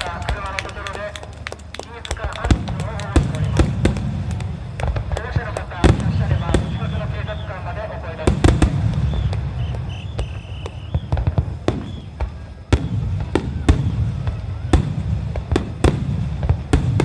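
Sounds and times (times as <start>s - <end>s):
continuous low rumble: 0.0s - 17.0s
firework shells bursting: 0.0s - 17.0s.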